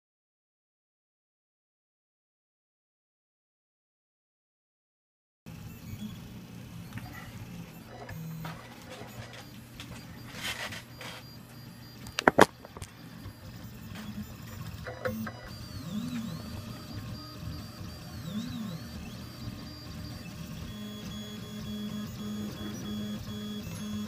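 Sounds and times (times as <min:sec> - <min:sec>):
stepper motors whining: 0:05.5 - 0:24.0.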